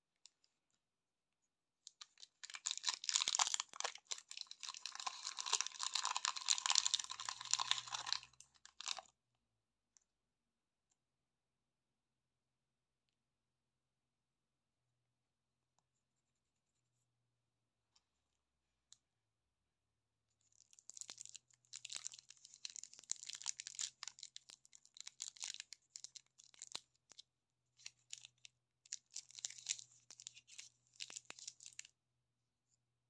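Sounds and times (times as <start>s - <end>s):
cellophane wrapper crinkling: 1.8s - 9.1s, 20.5s - 27.2s, 27.8s - 31.9s.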